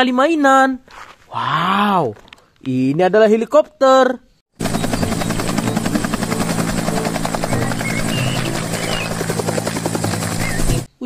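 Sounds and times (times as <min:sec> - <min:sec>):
helicopter rotor chopping: 0:04.5 - 0:10.9.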